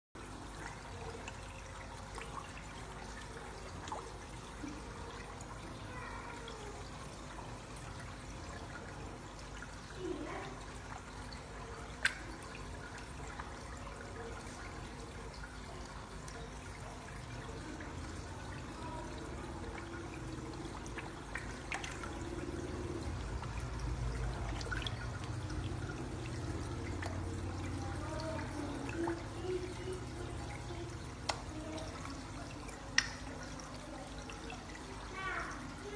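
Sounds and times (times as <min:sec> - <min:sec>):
water sloshing and trickling: 0:00.2 - 0:35.9
fish splashing: 0:11.4 - 0:13.6, 0:20.1 - 0:35.8.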